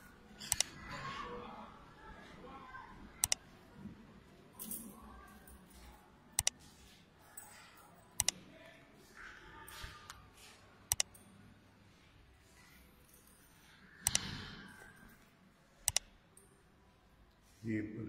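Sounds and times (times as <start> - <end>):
faint room noise: 0.0 - 18.0
mouse double click: 14.0 - 14.2.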